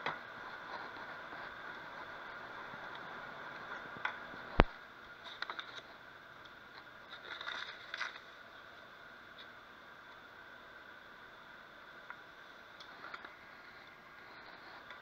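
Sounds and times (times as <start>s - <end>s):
plastic bag crinkling: 7.1s - 8.4s.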